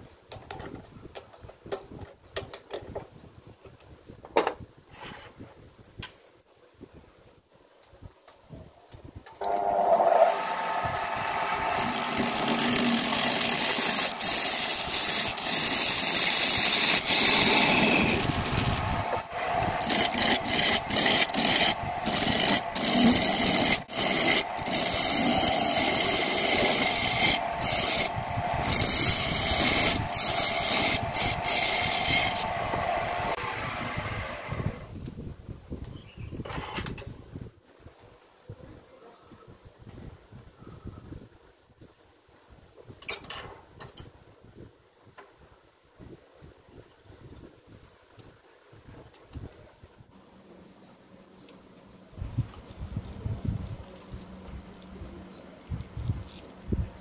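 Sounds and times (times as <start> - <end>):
chisel scraping spinning wood: 9.5 - 33.5
wood lathe running: 9.5 - 34.5.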